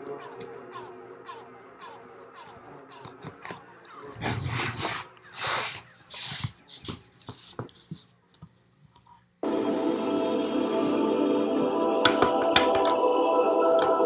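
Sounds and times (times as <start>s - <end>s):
music: 9.4s - 14.0s.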